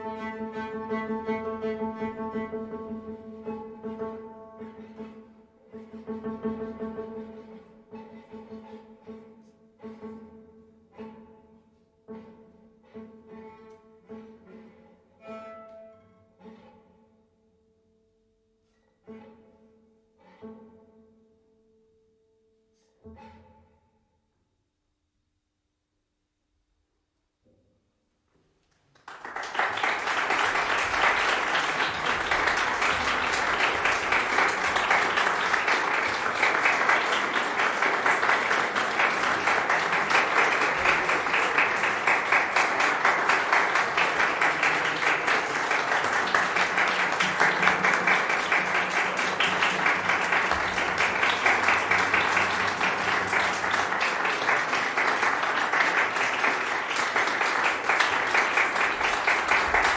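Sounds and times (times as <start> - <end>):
audience applauding: 28.6 - 59.9.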